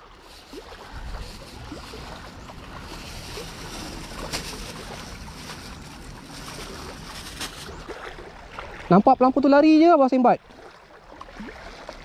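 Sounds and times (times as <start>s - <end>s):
low wind rumble on microphone: 0.0s - 7.9s
plastic bag crinkling: 0.2s - 7.9s
sharp crackle: 1.2s - 7.9s.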